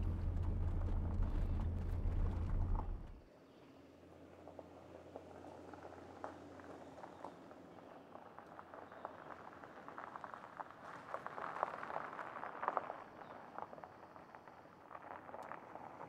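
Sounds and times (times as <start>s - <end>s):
tyres crunching on gravel: 0.0s - 3.2s.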